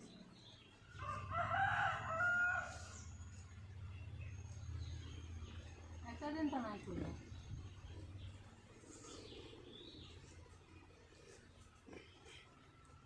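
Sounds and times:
rooster crowing: 0:01.0 - 0:03.0.

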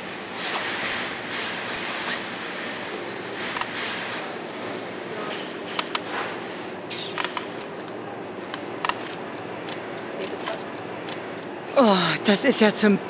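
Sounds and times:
steady background hum: 0:00.0 - 0:13.0
coins clinking: 0:01.7 - 0:06.1, 0:06.9 - 0:13.0.

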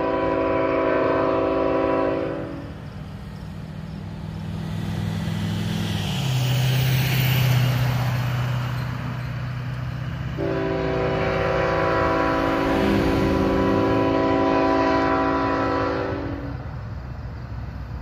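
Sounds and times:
locomotive air horn chord: 0:00.0 - 0:02.7, 0:10.4 - 0:16.7
locomotive engines droning: 0:00.0 - 0:18.0
pickup truck passing: 0:02.4 - 0:18.0.

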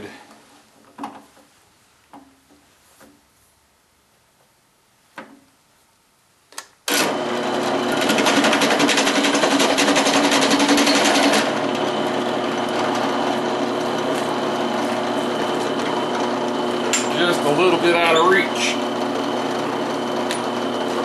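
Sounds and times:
drill press running: 0:06.9 - 0:21.0.

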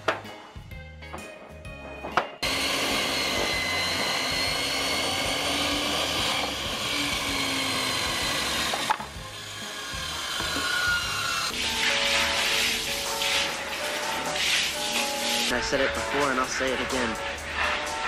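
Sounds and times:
electric saw cutting wood: 0:02.4 - 0:15.5.

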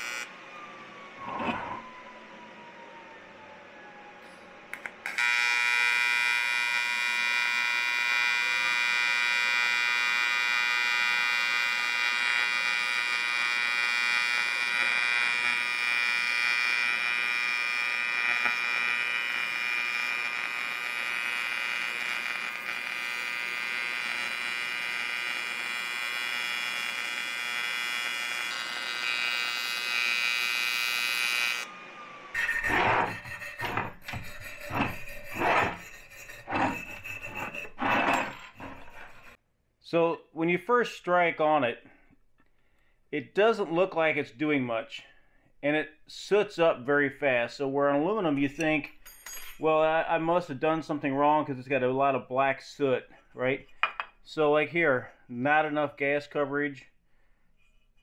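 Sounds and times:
welding arc buzzing: 0:00.0 - 0:00.3, 0:04.8 - 0:31.7, 0:32.4 - 0:39.4
wire brush scraping metal: 0:32.4 - 0:39.4.

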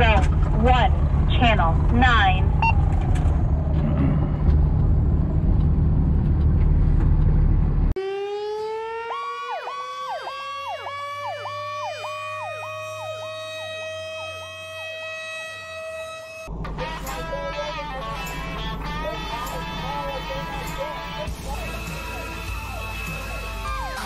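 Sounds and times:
diesel engine rumbling: 0:00.0 - 0:08.0, 0:11.2 - 0:24.0
electronic siren sweeping: 0:02.4 - 0:03.8, 0:08.0 - 0:24.0
siren winding up: 0:02.4 - 0:03.8, 0:08.0 - 0:18.3.

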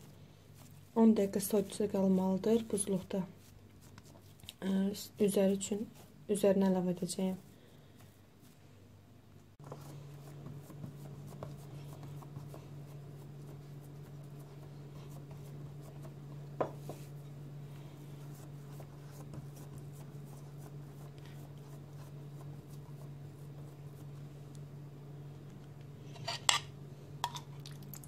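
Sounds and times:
fingers patting dough: 0:09.6 - 0:17.2.

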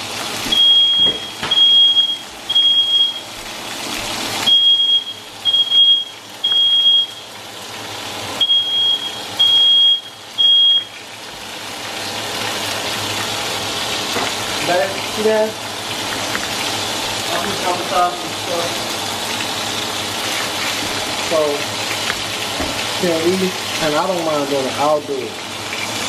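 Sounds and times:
bacon sizzling in a frying pan: 0:00.0 - 0:26.0
smoke alarm beeping: 0:00.5 - 0:03.4, 0:04.4 - 0:07.4, 0:08.4 - 0:11.1.

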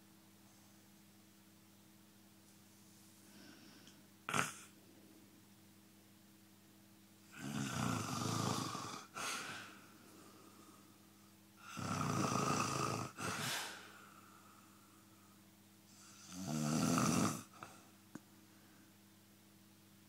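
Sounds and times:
man snoring: 0:04.3 - 0:04.7, 0:07.3 - 0:09.7, 0:11.6 - 0:13.9, 0:15.9 - 0:17.8.

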